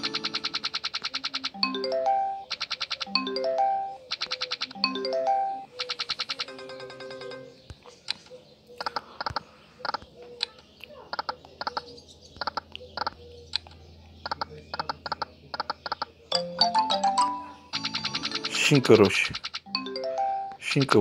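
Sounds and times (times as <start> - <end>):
slot reels clicking: 0.0 - 5.0, 17.7 - 21.0.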